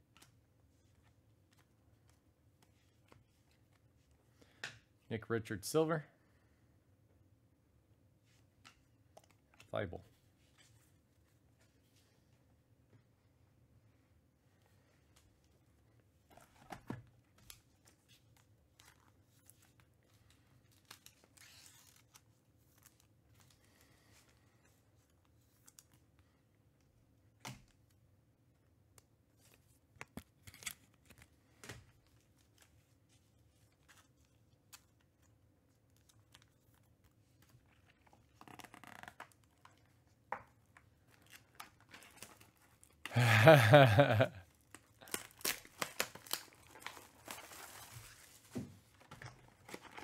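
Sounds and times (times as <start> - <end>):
plastic shrink wrap rustling: 43.9 - 50.0.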